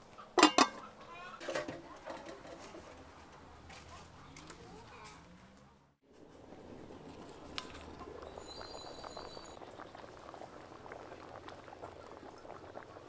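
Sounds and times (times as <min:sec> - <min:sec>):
curry bubbling in a pot: 0:06.6 - 0:13.0.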